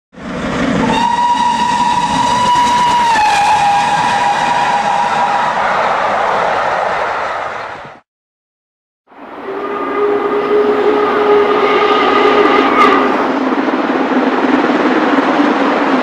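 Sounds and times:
train rumbling: 0:00.2 - 0:08.0, 0:09.1 - 0:16.0
train horn: 0:00.8 - 0:06.0, 0:09.2 - 0:13.2.

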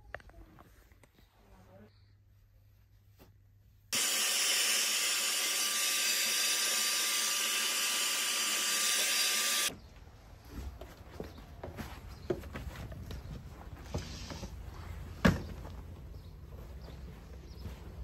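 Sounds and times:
hair dryer blowing: 0:04.0 - 0:09.7.

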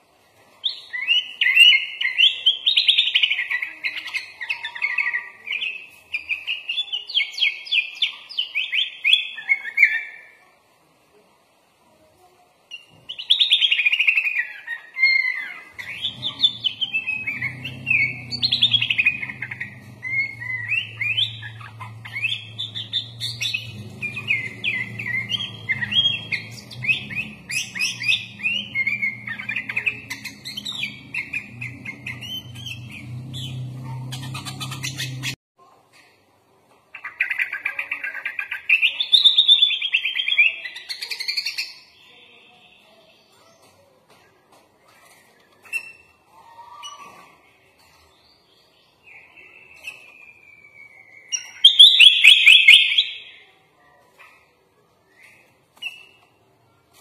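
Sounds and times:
bird singing chirps and trills: 0:00.6 - 0:10.4, 0:12.7 - 0:35.4, 0:45.0 - 0:53.6.

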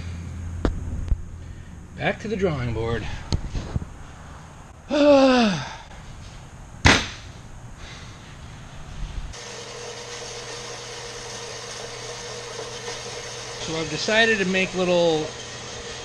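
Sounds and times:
steady mechanical hum: 0:00.0 - 0:16.0
sharp knock: 0:06.8 - 0:07.3.

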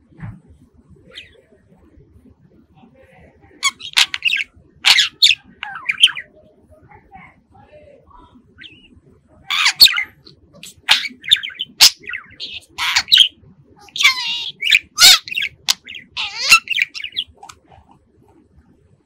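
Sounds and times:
budgerigar chirping and whistling: 0:03.6 - 0:06.3, 0:09.5 - 0:17.5.

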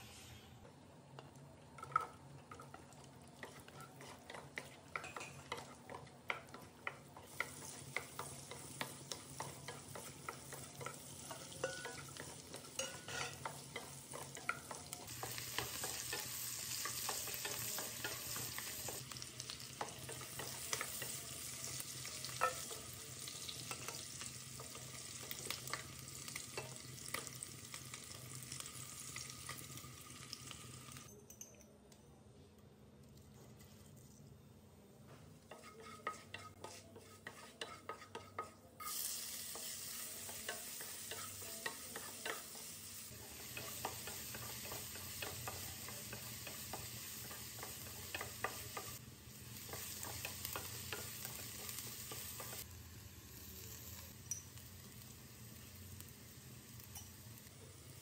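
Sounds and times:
vegetables sizzling in oil: 0:00.0 - 0:31.1, 0:35.5 - 0:58.0
wooden spatula scraping pan: 0:35.5 - 0:38.6.

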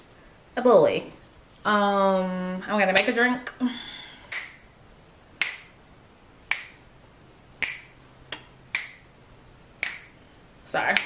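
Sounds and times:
fingers snapping: 0:04.3 - 0:04.6, 0:05.4 - 0:05.8, 0:06.5 - 0:06.8, 0:07.6 - 0:09.1, 0:09.8 - 0:10.2.

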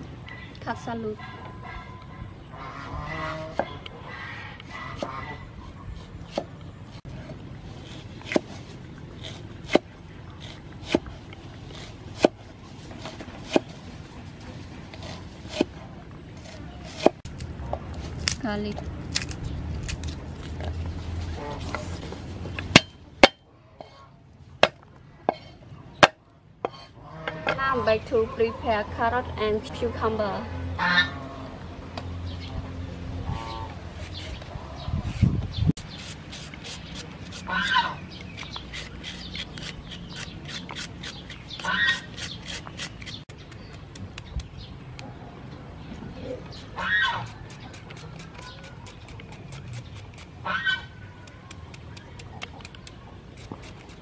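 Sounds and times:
peeler scraping vegetables: 0:07.7 - 0:12.3, 0:33.3 - 0:44.5, 0:46.4 - 0:54.0
garlic peeling clicks and rustling: 0:17.3 - 0:20.9.

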